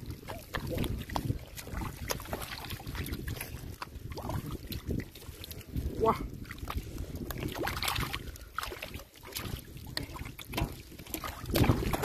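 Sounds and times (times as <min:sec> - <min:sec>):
wind rumble on microphone: 0:00.0 - 0:12.0
hands splashing in shallow water: 0:06.4 - 0:12.0.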